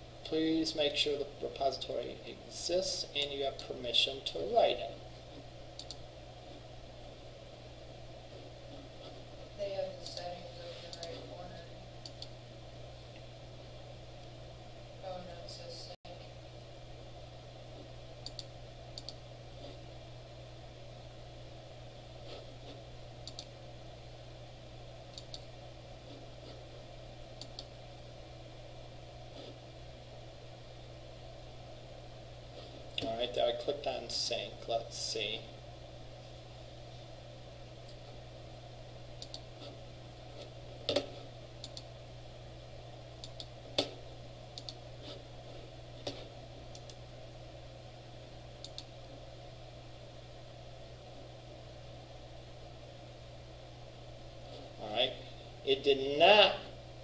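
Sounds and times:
steady low hum: 0.0 - 57.0
computer mouse clicking: 5.7 - 6.0, 10.9 - 11.3, 12.0 - 12.4, 18.2 - 19.8, 22.3 - 23.5, 25.1 - 25.5, 27.4 - 27.7, 39.2 - 39.7, 40.4 - 41.9, 43.2 - 45.2, 46.0 - 47.0, 48.6 - 48.9.

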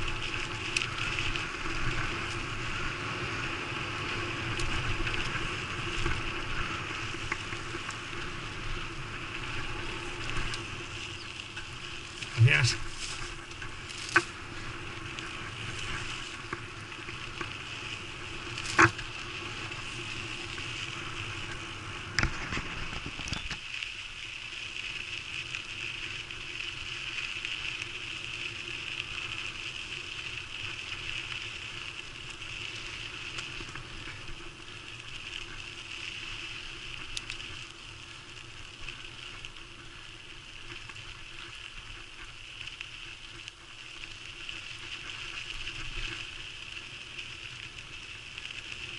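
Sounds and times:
bicycle rolling over dirt trail: 0.0 - 48.9.

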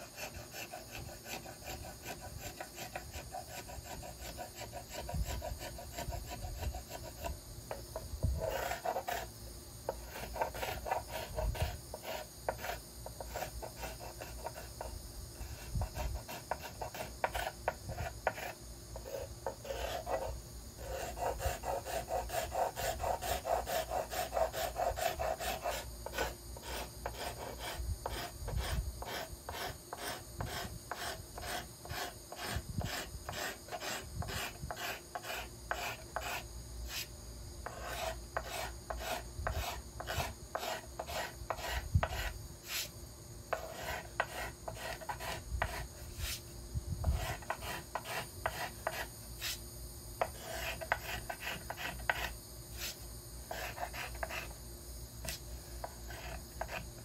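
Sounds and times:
card scraper scratching wood: 0.0 - 9.3, 15.8 - 42.9, 43.6 - 46.4, 47.0 - 49.6, 50.2 - 54.5.

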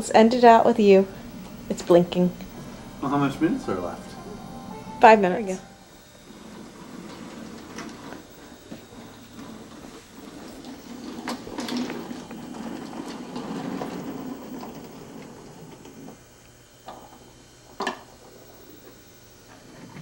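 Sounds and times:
wooden toy train rolling on track: 6.3 - 16.2.

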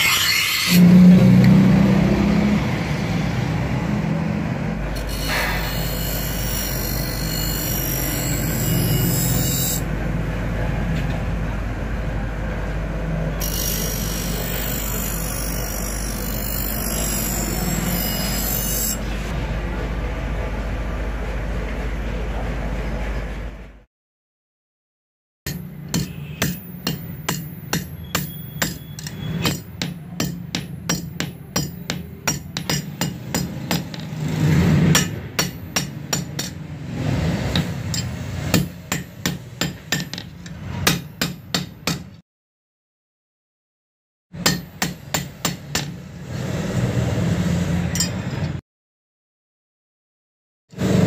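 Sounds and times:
hammer striking steel: 25.5 - 42.2, 44.4 - 46.2, 47.9 - 48.6.

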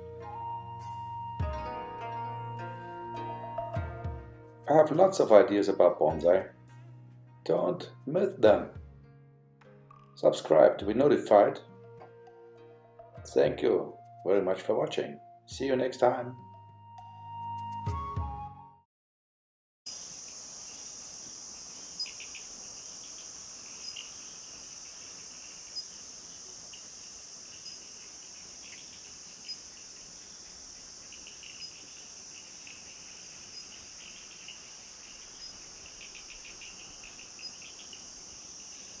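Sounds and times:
music: 0.0 - 18.9
insect chorus: 19.9 - 39.0.

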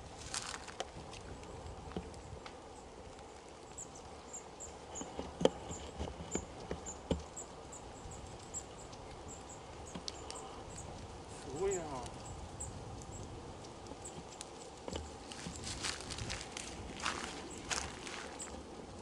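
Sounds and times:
soft knocks and crunches: 0.2 - 2.6, 13.9 - 18.7.

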